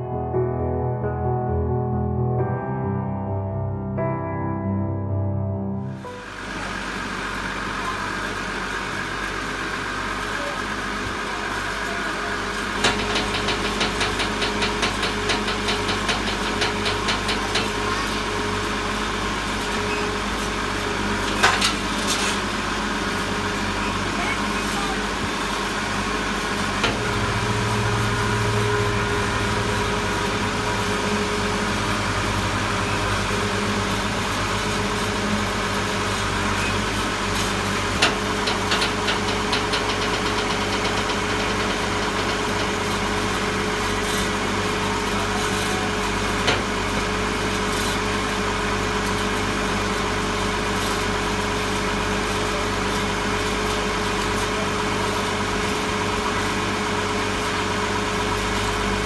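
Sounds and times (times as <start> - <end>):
tractor engine idling: 5.9 - 59.0
sharp clicks and knocks: 12.8 - 18.2, 38.0 - 43.4.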